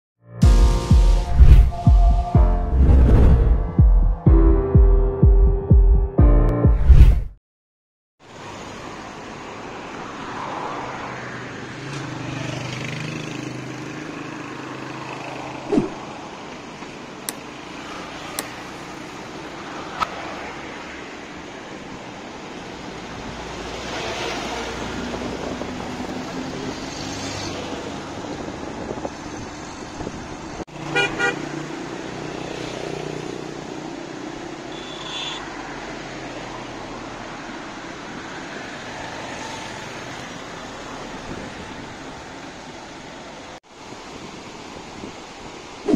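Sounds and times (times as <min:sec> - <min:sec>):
road traffic passing: 0:00.6 - 0:03.8, 0:08.2 - 0:44.8
vehicle horn beeping: 0:30.9 - 0:31.4, 0:34.7 - 0:35.5.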